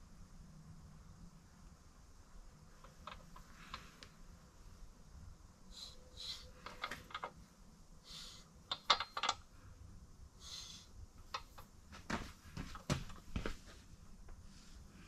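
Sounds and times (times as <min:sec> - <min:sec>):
metallic clicks and clinks: 0:08.7 - 0:09.4.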